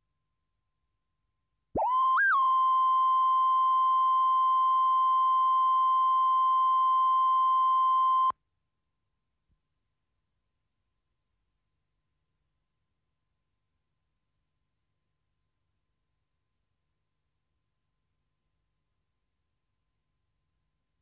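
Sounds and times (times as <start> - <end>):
steady line-up tone beep: 1.8 - 8.3.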